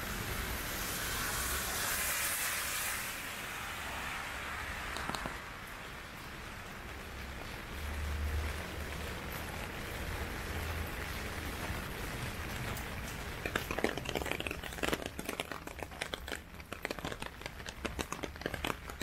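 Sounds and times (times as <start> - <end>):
heavy rain hissing: 0.0 - 13.6
close taps of raindrops: 4.8 - 19.0.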